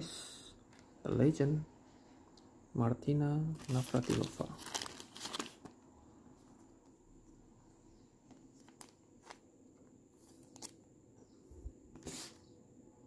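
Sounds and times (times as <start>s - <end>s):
plastic sleeve rustling: 3.6s - 5.8s, 8.3s - 9.4s.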